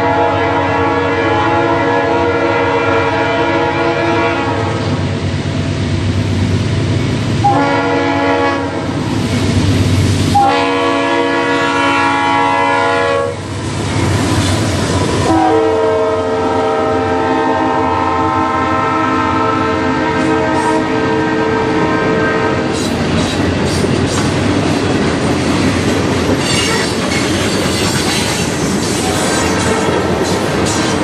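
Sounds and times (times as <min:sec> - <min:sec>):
locomotive air horn blasts: 0:00.0 - 0:04.8, 0:07.4 - 0:08.9, 0:10.3 - 0:13.4, 0:15.2 - 0:22.9, 0:29.5 - 0:30.1
train wheels rumbling and clattering: 0:04.6 - 0:15.8, 0:21.8 - 0:31.0.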